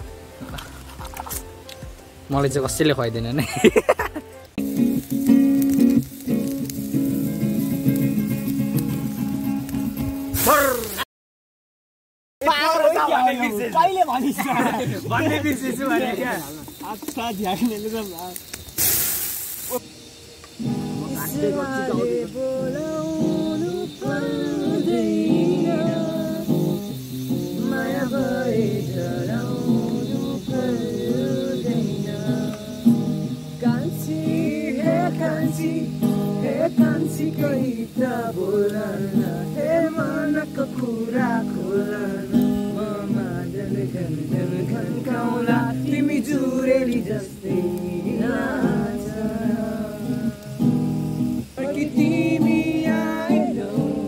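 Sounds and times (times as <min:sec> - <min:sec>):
acoustic guitar strumming: 0:00.0 - 0:10.7, 0:19.8 - 0:54.0
men singing: 0:21.0 - 0:33.0, 0:33.6 - 0:50.8, 0:51.4 - 0:54.0.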